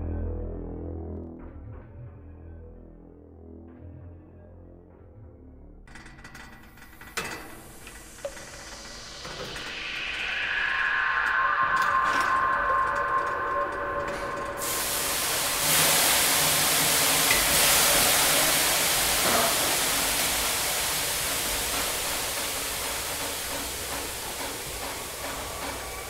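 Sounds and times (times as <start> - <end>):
steady rushing hiss: 6.4 - 26.0.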